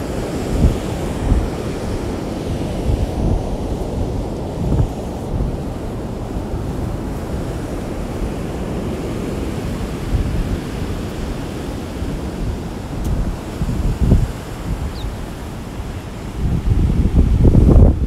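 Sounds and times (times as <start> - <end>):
heavy surf: 0.0 - 18.0
wind buffeting microphone: 0.0 - 18.0.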